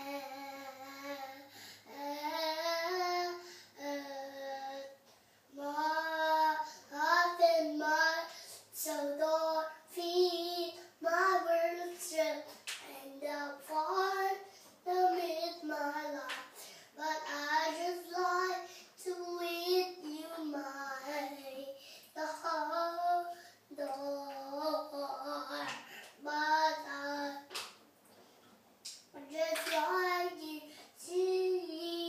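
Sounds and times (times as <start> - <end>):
young child singing: 0.0 - 27.6, 29.1 - 32.0.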